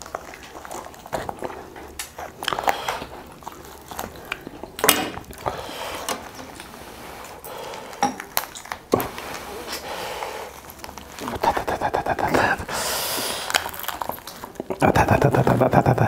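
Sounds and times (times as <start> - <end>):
roast duck crackling apart: 12.7 - 14.8.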